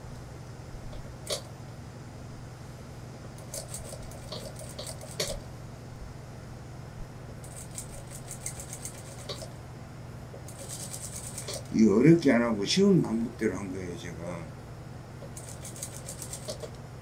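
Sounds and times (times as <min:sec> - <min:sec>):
sewing machine rapid clicking: 0:03.4 - 0:05.4, 0:07.5 - 0:09.5, 0:10.5 - 0:11.7, 0:15.4 - 0:16.8.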